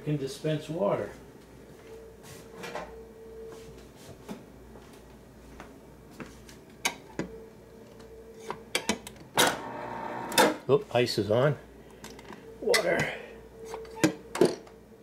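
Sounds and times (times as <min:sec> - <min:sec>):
faint hum: 0:00.0 - 0:15.0
ice dispenser mechanical buzz: 0:09.4 - 0:10.6.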